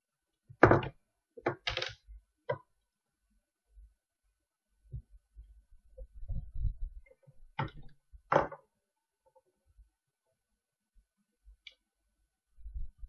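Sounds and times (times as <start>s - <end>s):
soft low thumps and knocks: 6.0s - 7.0s.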